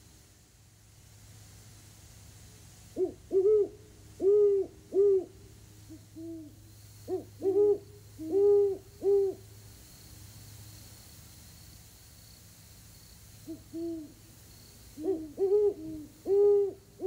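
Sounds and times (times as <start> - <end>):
owl hooting: 3.0 - 9.5, 13.4 - 14.2, 15.0 - 17.0.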